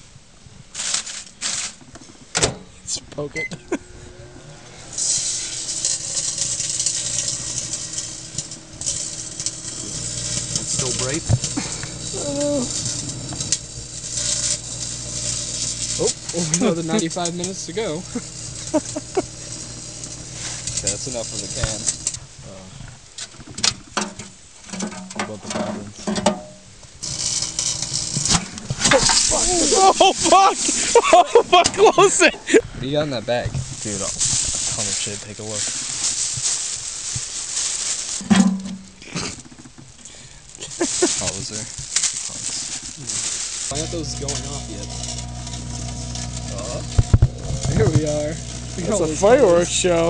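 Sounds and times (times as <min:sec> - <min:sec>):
foil crackling and snapping: 0:00.7 - 0:01.9, 0:04.9 - 0:22.2, 0:27.0 - 0:32.3, 0:32.9 - 0:50.0
microwave oven hum: 0:03.4 - 0:22.2, 0:27.0 - 0:31.4, 0:43.0 - 0:50.0.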